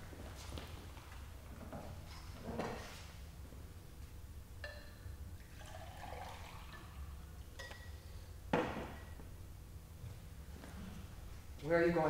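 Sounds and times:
water pouring into glass: 5.4s - 7.1s.

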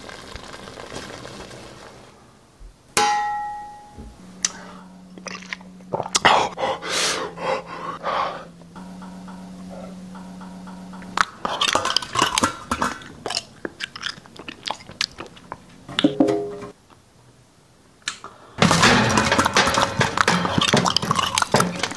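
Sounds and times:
low steady hum: 2.1s - 21.9s
wet chewing and smacking: 11.2s - 15.8s.

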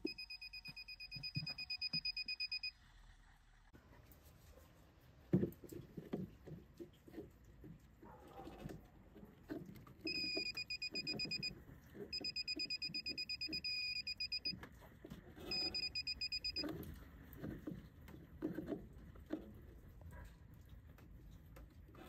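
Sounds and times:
breaker finder rapid high beeps: 0.0s - 2.7s, 10.1s - 11.5s, 12.1s - 14.5s, 15.5s - 16.6s.

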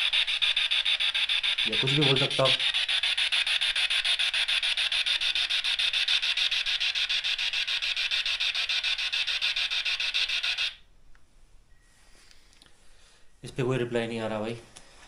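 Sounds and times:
pulsing radio static: 0.0s - 3.9s.

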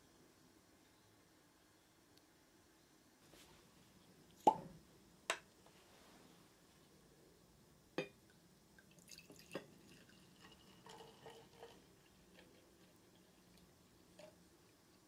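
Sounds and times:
liquid trickling into a flask: 8.8s - 15.0s.

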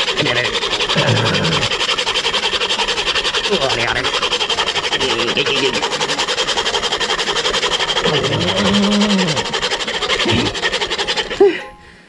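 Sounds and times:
hacksaw sawing metal: 0.0s - 11.8s
person grunting: 8.0s - 9.4s
person laughing: 10.2s - 10.6s, 11.3s - 11.8s.

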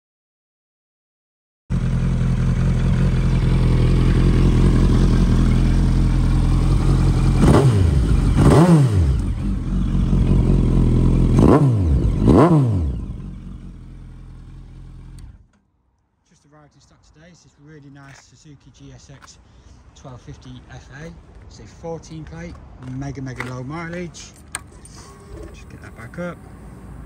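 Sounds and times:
motorcycle engine revving: 1.7s - 15.5s
motorcycle engine idling: 1.7s - 15.6s.

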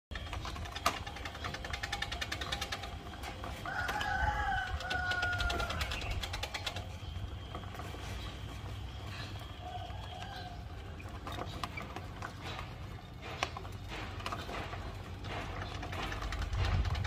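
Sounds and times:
hamster wheel clicking: 0.1s - 7.7s
rooster crowing: 3.6s - 6.1s, 9.5s - 10.8s.

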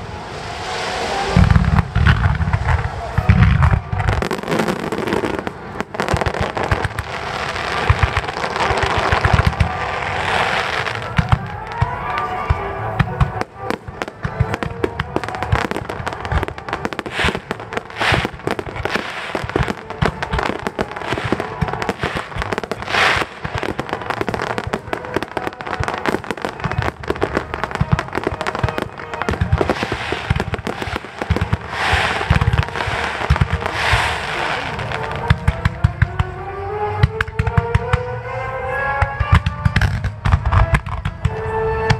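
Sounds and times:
fireworks bursting: 0.0s - 41.9s
background music: 4.1s - 41.9s.

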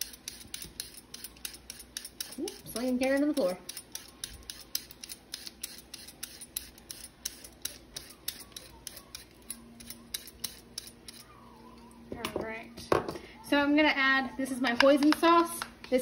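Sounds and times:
peeler scraping carrot: 0.0s - 11.3s.

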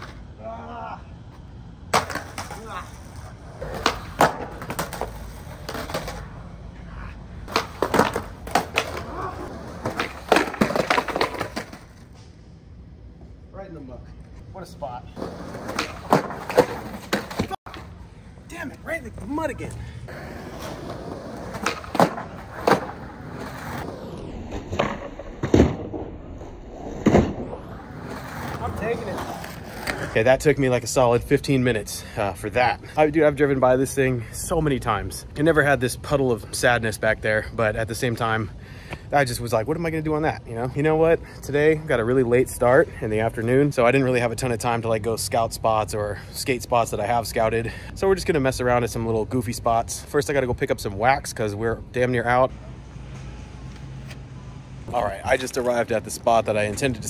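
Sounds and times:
skateboard wheels rolling: 1.8s - 12.2s, 14.6s - 31.0s, 52.2s - 57.0s
skateboard clacks and slaps: 1.9s - 6.2s, 7.5s - 11.9s, 20.4s - 23.8s.

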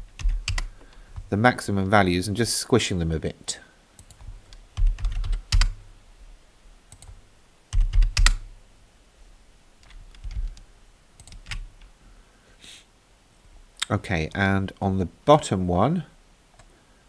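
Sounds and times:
computer keyboard typing: 0.0s - 0.8s, 4.0s - 5.8s, 6.9s - 8.4s, 9.8s - 10.6s, 11.2s - 11.7s.

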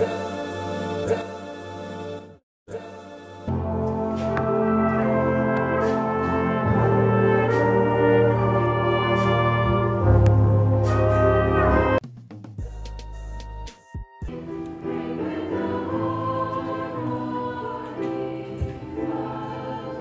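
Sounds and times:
jazz band with brass: 3.6s - 14.4s.

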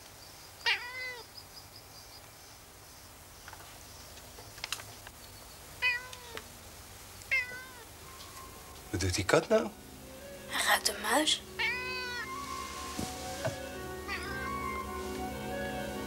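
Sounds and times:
cat meowing: 0.6s - 1.3s, 5.8s - 6.4s, 7.3s - 7.9s, 11.5s - 12.7s, 14.0s - 15.0s.

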